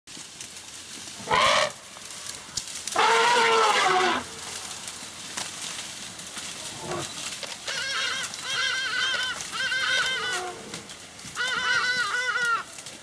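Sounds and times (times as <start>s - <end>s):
elephant trumpeting: 1.2s - 1.8s, 2.9s - 4.4s, 6.7s - 10.8s, 11.4s - 12.7s.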